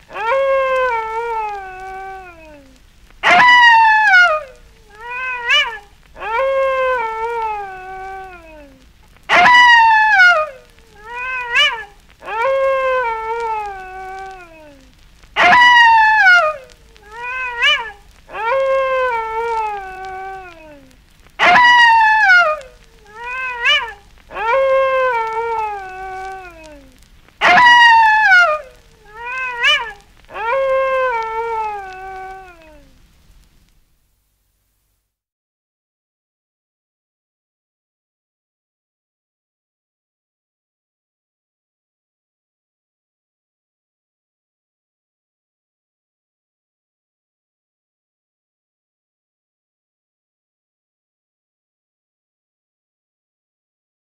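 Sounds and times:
wolf howling: 0:00.0 - 0:33.0
wolf yips: 0:00.1 - 0:32.9.

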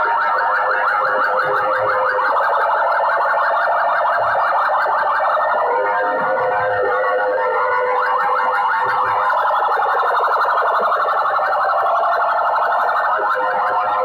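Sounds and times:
loudspeakers blaring siren tone: 0:00.0 - 0:14.0.

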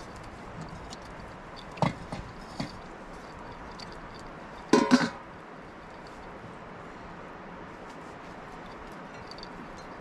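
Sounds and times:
metal cookware clinking: 0:04.7 - 0:05.2
metal dishes clattering: 0:04.7 - 0:05.2.

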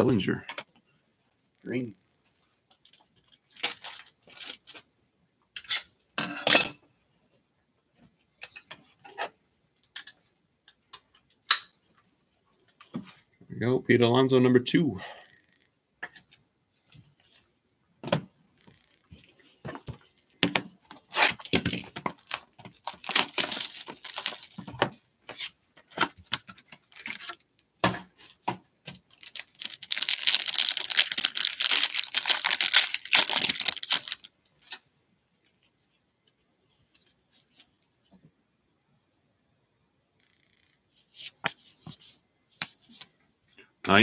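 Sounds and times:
plastic wrapper tearing and crinkling: 0:03.4 - 0:04.8, 0:21.2 - 0:24.6, 0:26.8 - 0:27.4, 0:28.9 - 0:34.8
cards clicking and rustling: 0:29.1 - 0:34.3.

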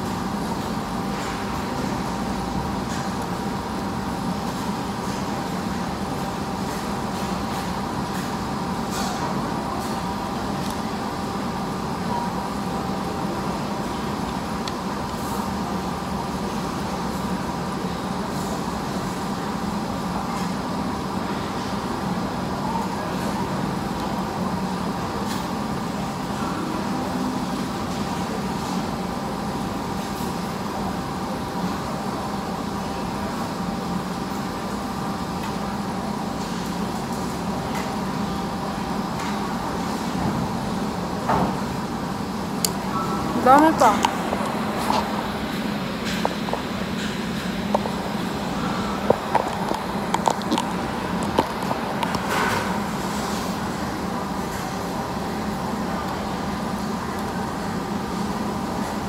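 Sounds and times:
eating hall din: 0:00.0 - 0:59.0.

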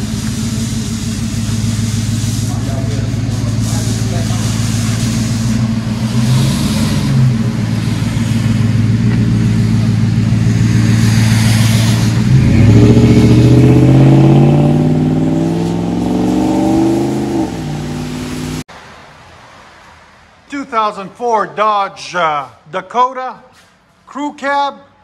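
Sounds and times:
tyre hiss on wet pavement: 0:00.0 - 0:13.4
pickup truck engine revving: 0:00.0 - 0:18.7.

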